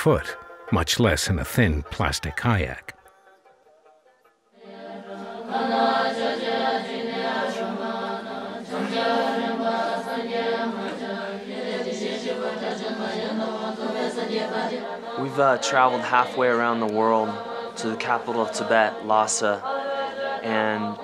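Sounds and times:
women chanting in unison: 4.6s - 21.0s.

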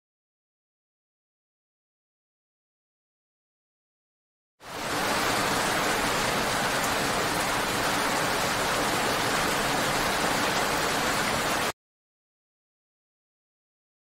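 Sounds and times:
rain falling on asphalt: 4.6s - 11.7s.

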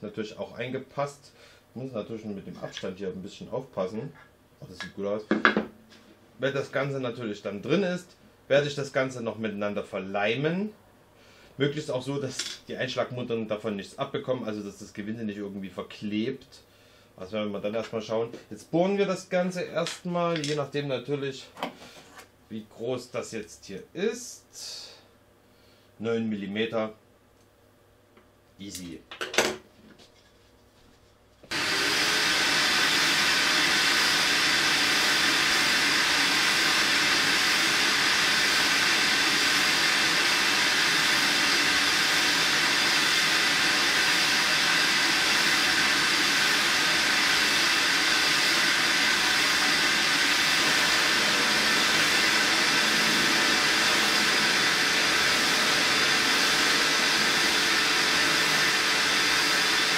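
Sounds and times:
drill press drilling wood: 31.5s - 59.9s.

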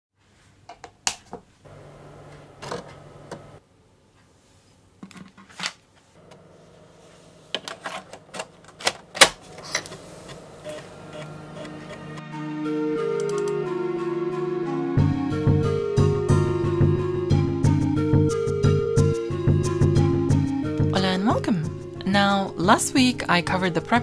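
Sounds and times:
floppy disk clicking into drive: 8.1s - 12.2s.

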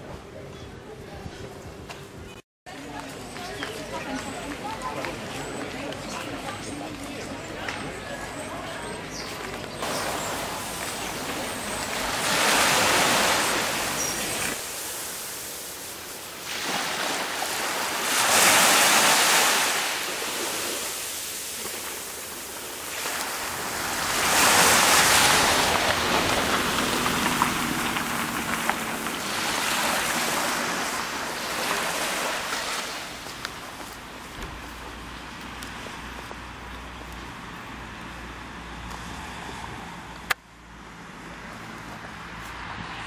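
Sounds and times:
waves breaking on beach: 9.8s - 34.7s.

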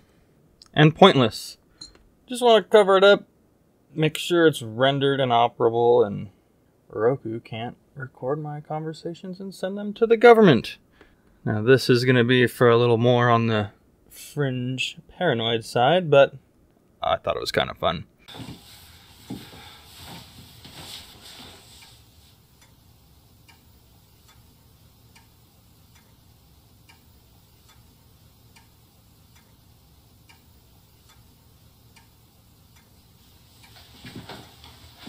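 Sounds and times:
clock ticking: 21.8s - 33.9s
soft knocks and rustles: 33.7s - 35.0s.

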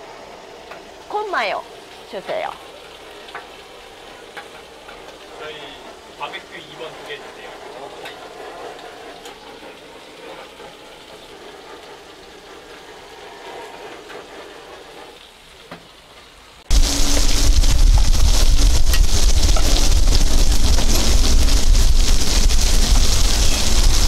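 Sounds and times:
eggs frying in oil: 0.0s - 24.0s
food sizzling on a griddle: 0.0s - 24.0s.

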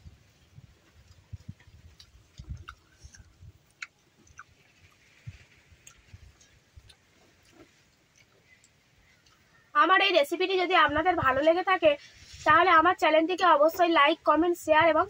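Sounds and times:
person chewing: 0.7s - 9.5s.

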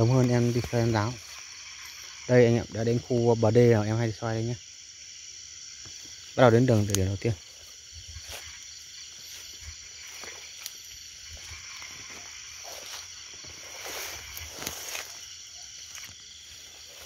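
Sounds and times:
rustling of leaves and brush: 0.0s - 2.4s, 5.8s - 17.0s
night insects chirring: 0.0s - 17.0s.

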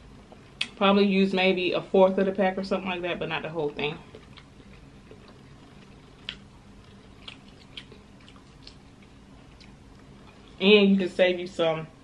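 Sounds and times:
wet eating sounds: 3.4s - 10.7s.

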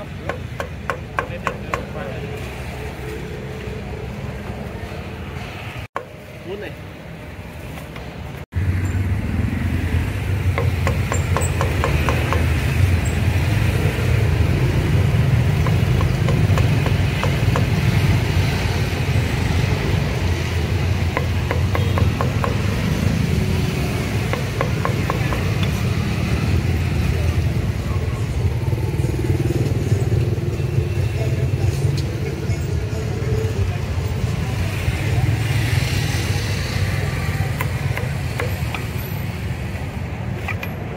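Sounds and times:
engine rumble: 0.0s - 40.9s
cleaver chopping on wooden block: 0.2s - 2.0s, 10.5s - 12.8s, 15.5s - 18.0s, 21.0s - 23.0s, 24.0s - 25.8s, 37.5s - 38.9s.

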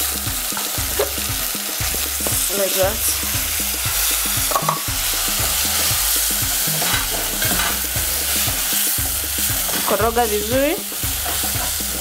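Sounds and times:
stew sizzling in a pot: 0.0s - 12.0s
wooden spoon scraping a metal pot: 4.5s - 8.4s.

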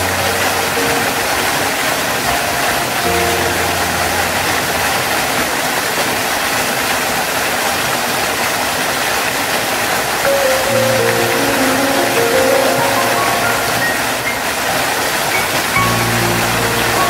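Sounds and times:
low background music: 0.0s - 5.4s, 10.3s - 17.0s
waterfall rushing: 0.0s - 17.0s.

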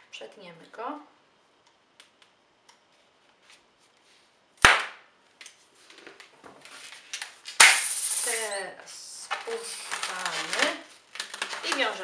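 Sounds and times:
balloon popping: 7.6s - 8.2s.

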